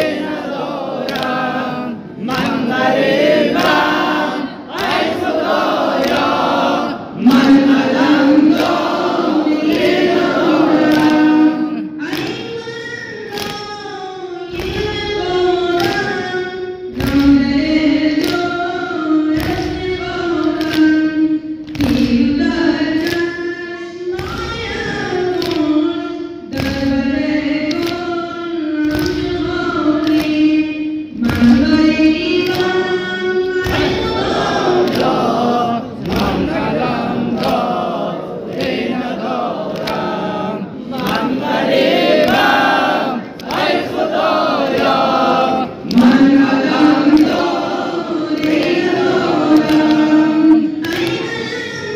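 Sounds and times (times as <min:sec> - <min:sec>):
voices singing slow chant: 0:00.0 - 0:12.4, 0:24.0 - 0:51.9
heavy rhythmic thump: 0:00.0 - 0:51.9.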